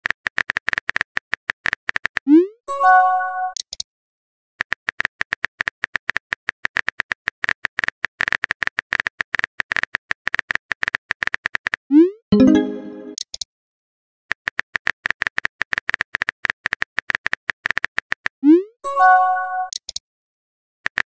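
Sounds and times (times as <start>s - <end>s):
message chime: 12.3s - 13.2s.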